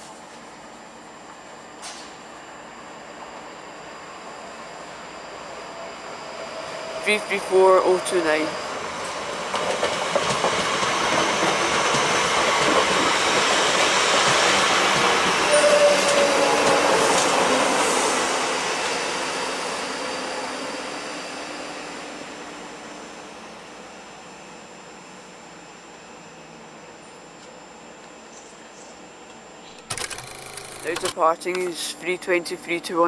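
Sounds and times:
electric train passing: 0:02.4 - 0:27.1
brief squeal: 0:15.4 - 0:18.2.

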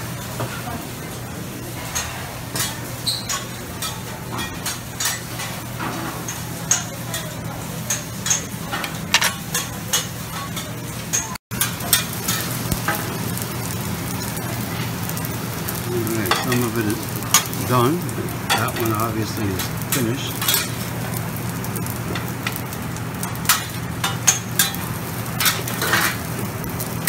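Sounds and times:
griddle sizzling: 0:00.0 - 0:27.0
tongs clinking against plates: 0:06.3 - 0:13.1, 0:16.1 - 0:17.6, 0:18.5 - 0:20.9, 0:23.2 - 0:26.3.

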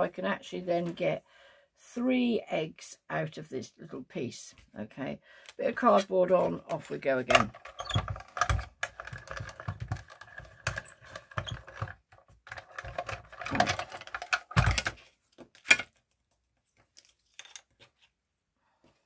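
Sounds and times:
hand-cranked machine clicking: 0:07.3 - 0:11.9.

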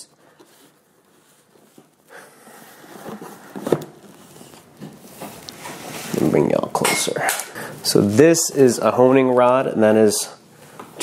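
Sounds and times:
cardboard box scraping and rustling: 0:02.5 - 0:06.3.

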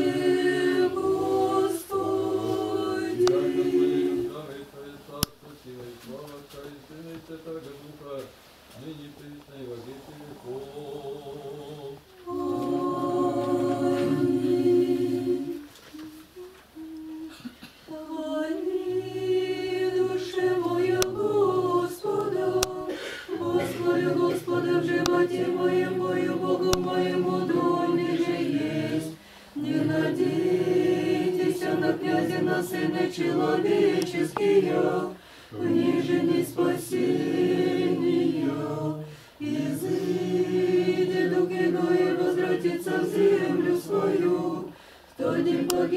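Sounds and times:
choir chanting a cappella: 0:00.0 - 0:05.1, 0:09.8 - 0:45.9
singers breathing: 0:22.9 - 0:23.4, 0:29.2 - 0:29.6, 0:35.1 - 0:35.6, 0:39.0 - 0:39.4, 0:44.7 - 0:45.2.

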